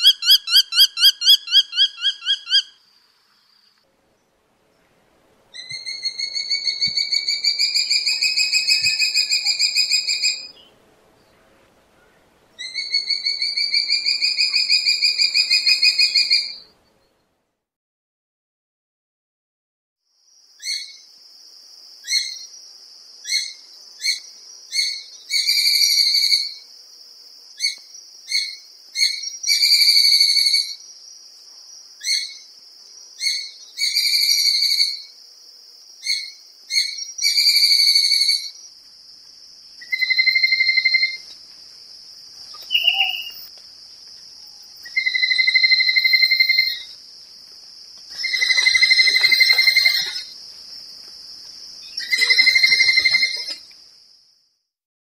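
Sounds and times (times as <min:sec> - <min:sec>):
sparrowhawk calling: 0:00.0 - 0:02.7, 0:42.5 - 0:43.5.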